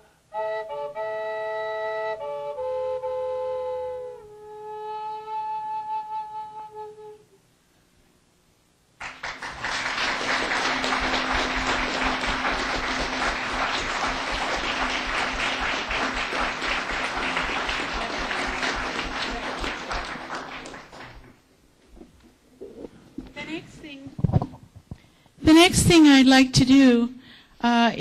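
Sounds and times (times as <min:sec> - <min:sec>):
audience applauding: 0:09.0 - 0:21.4.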